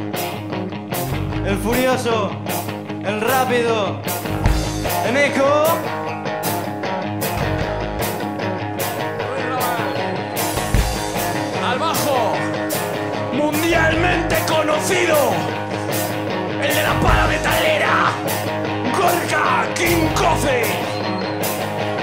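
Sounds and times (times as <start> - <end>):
rock band playing: 0.0 - 22.0
electric guitar bent notes: 4.0 - 5.1, 5.8 - 22.0
heavy drum accents: 4.2 - 5.1, 7.2 - 14.6, 15.4 - 19.3.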